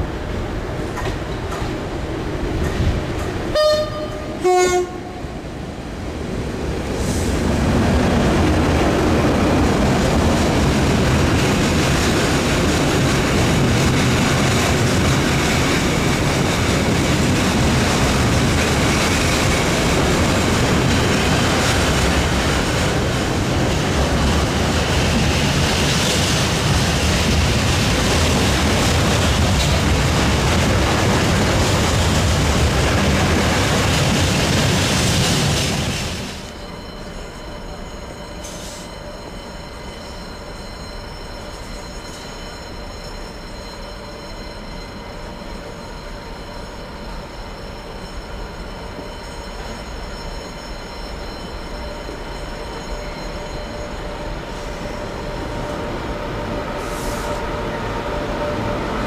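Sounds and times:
train wheels rumbling on rail: 0.0s - 59.0s
locomotive two-tone horn: 3.5s - 5.3s, 55.4s - 58.9s.

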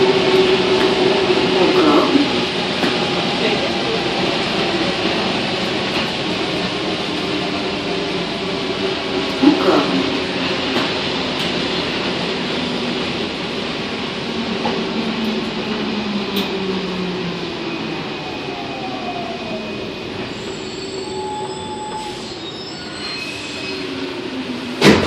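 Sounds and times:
train rolling din: 0.0s - 25.0s
high brake squeals: 19.6s - 24.0s.

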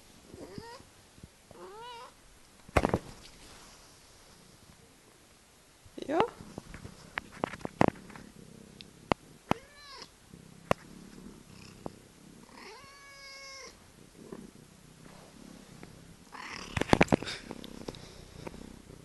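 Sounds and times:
cat purring: 6.1s - 19.0s
cat meowing: 9.5s - 10.1s, 12.6s - 13.8s.

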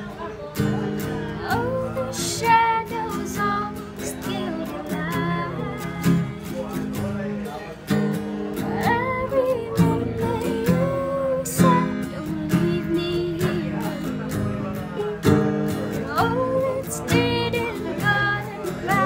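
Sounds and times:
acoustic guitar strumming: 0.0s - 19.0s
woman singing: 1.0s - 6.8s, 8.6s - 14.7s, 15.9s - 19.0s.

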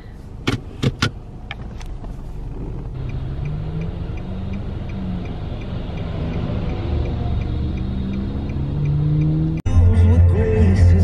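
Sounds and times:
car engine running: 0.0s - 9.6s
light even ticking: 1.7s - 9.6s.

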